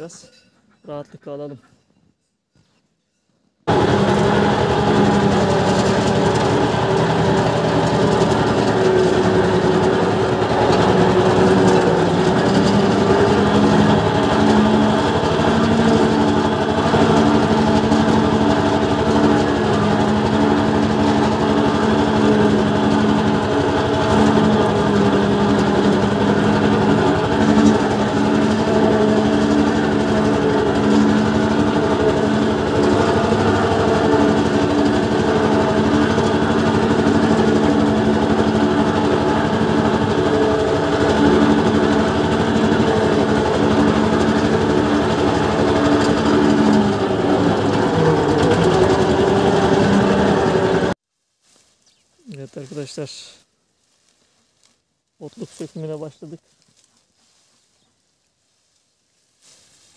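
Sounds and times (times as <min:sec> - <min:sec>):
tractor engine running: 0:03.7 - 0:51.0.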